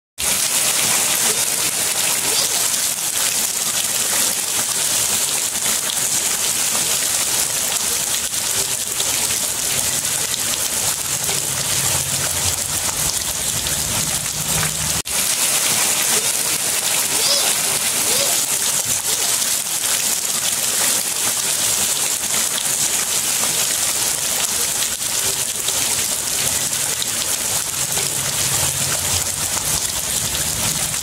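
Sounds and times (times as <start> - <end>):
heavy rain splashing on stone: 0.2 - 31.0.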